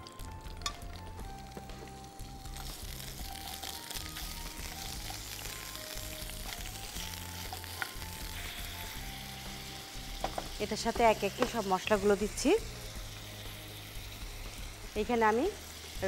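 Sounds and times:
chicken sizzling in frying oil: 0:00.0 - 0:16.0
soft background music: 0:00.0 - 0:16.0.

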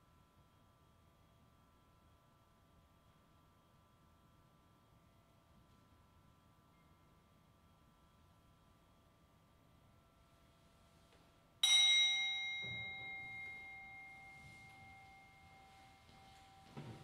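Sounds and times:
small bell chime ringing: 0:11.6 - 0:17.0.

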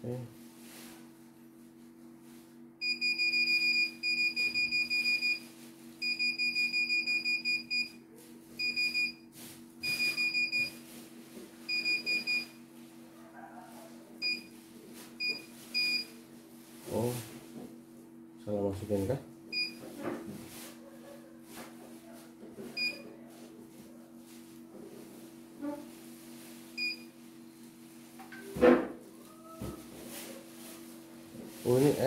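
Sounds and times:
high machine beeps: 0:02.8 - 0:05.4, 0:06.0 - 0:08.0, 0:08.6 - 0:09.2, 0:09.8 - 0:10.8, 0:11.7 - 0:12.6, 0:15.2 - 0:16.1.

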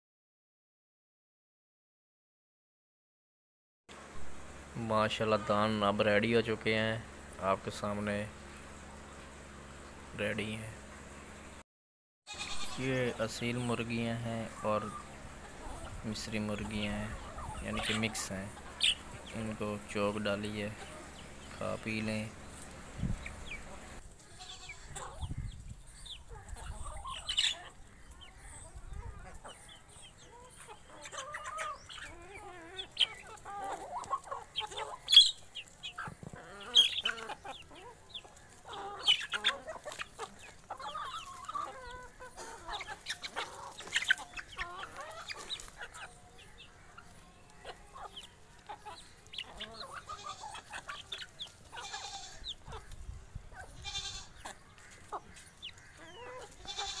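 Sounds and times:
hens clucking: 0:04.0 - 0:11.6, 0:12.3 - 0:57.0
hens pecking at feed: 0:26.0 - 0:57.0.

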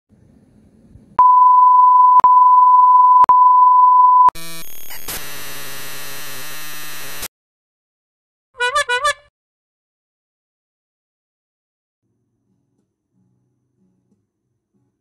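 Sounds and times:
harsh buzzing electronic sound: 0:04.3 - 0:07.3.

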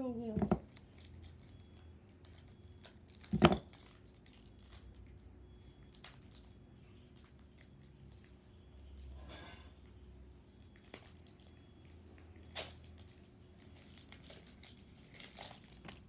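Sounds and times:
foil wrapper crinkling: 0:00.6 - 0:08.5, 0:10.4 - 0:16.0
foil rustling: 0:02.2 - 0:08.3, 0:10.5 - 0:16.0.

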